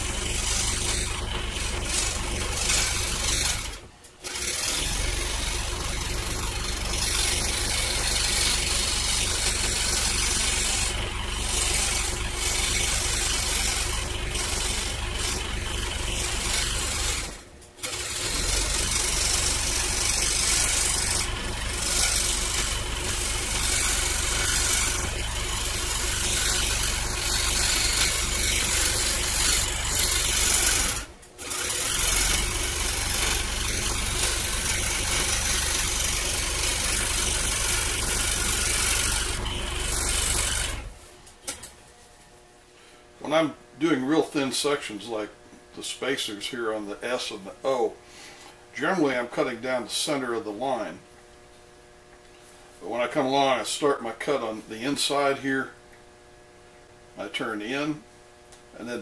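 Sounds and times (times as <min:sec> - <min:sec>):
scroll saw cutting wood: 0:00.0 - 0:41.1
low motor hum: 0:00.0 - 0:41.2.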